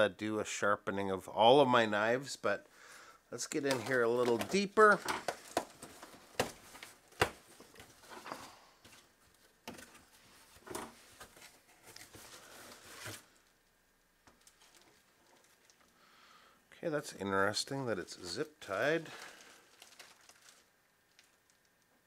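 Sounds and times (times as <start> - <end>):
packaging rustling and crinkling: 3.5 - 13.6, 14.3 - 16.0, 18.8 - 21.9.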